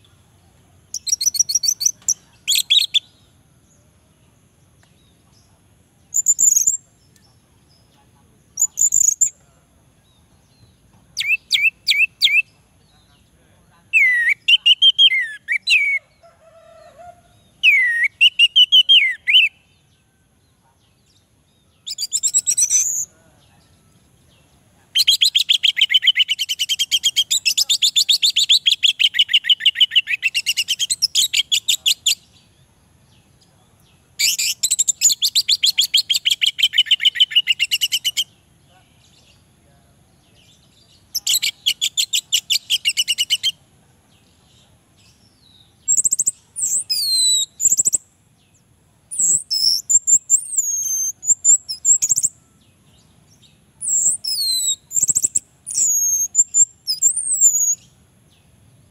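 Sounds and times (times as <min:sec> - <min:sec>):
thrush singing trills: 0:00.0 - 0:03.8, 0:06.1 - 0:09.4, 0:45.6 - 0:58.9.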